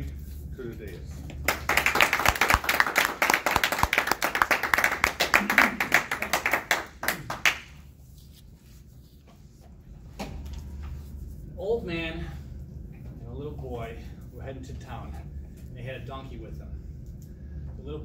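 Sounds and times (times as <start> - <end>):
small audience clapping: 1.4 - 7.9.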